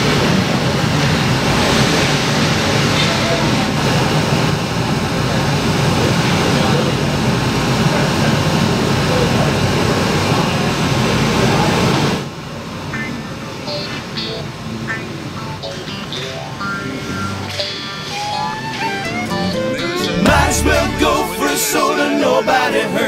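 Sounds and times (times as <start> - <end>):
many voices: 19.2 - 23.0.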